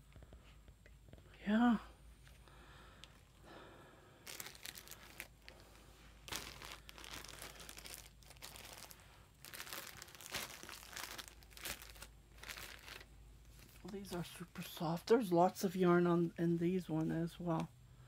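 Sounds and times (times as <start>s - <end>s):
plastic wrapping crinkling: 4.2s - 14.8s.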